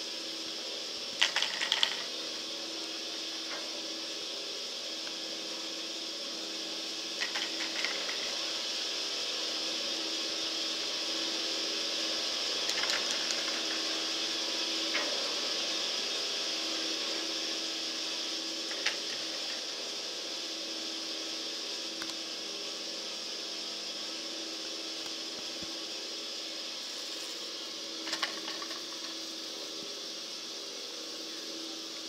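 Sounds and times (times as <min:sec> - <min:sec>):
ski lift mechanical hum: 0:00.0 - 0:32.0
clicks and rattles: 0:01.2 - 0:02.1, 0:07.2 - 0:08.3, 0:12.7 - 0:13.7, 0:28.0 - 0:29.2.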